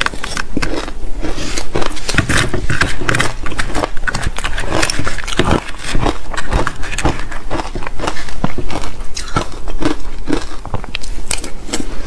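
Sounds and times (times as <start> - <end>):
chewing crunchy ice: 0.0 - 12.0
metal spoon scraping ice: 1.3 - 9.4.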